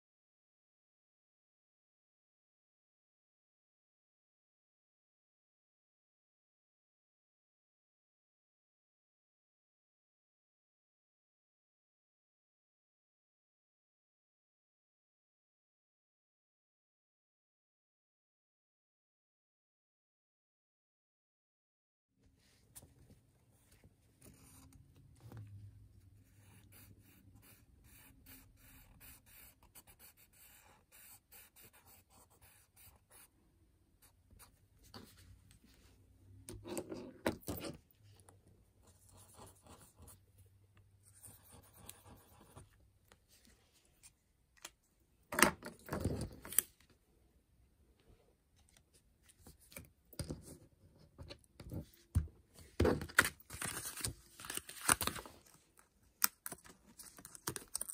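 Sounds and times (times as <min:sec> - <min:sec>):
marker scratching on paper: 0:26.2 - 0:33.3, 0:41.0 - 0:42.8.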